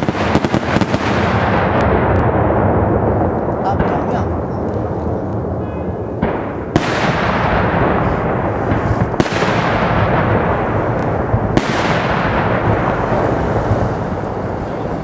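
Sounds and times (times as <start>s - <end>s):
fireworks bursting: 0.0s - 15.0s
sharp loud bangs: 6.2s - 13.4s.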